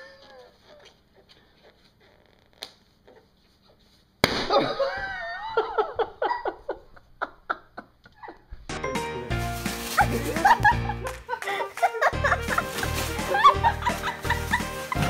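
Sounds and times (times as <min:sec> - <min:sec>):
balloon popping: 0:04.2 - 0:04.7
person laughing: 0:04.5 - 0:08.6, 0:09.9 - 0:15.0.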